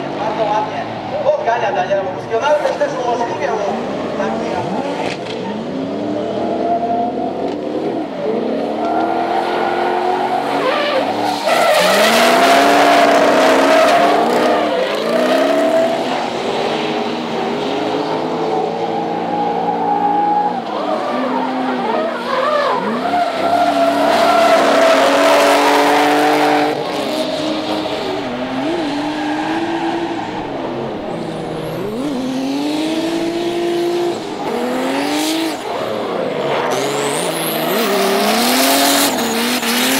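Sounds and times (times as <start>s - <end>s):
car engines revving hard: 2.1s - 39.9s
tyres squealing and skidding: 8.2s - 39.9s.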